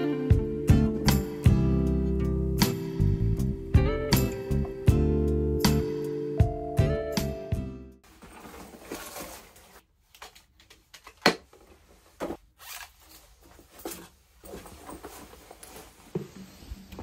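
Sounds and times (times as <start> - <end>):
clothing and bag rustling: 8.0 - 10.6, 11.5 - 17.0.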